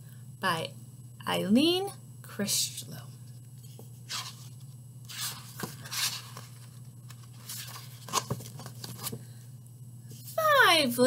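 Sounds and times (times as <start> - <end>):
book pages rustling: 3.6 - 9.2.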